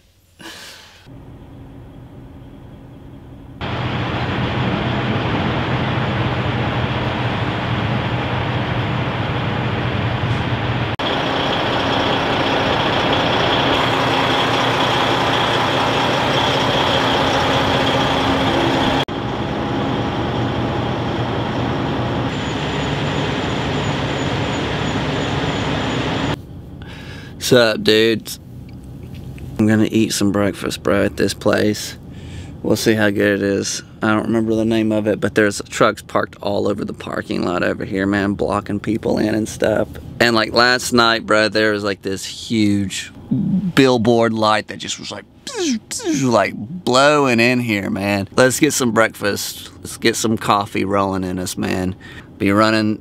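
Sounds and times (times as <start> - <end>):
truck diesel engine droning: 1.0 - 43.3.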